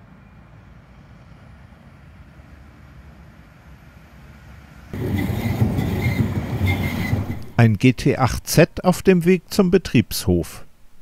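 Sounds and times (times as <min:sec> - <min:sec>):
distant road traffic: 0:00.0 - 0:07.9
tram wheels rumbling on rails: 0:00.3 - 0:07.9
tram wheel whines: 0:04.2 - 0:07.6.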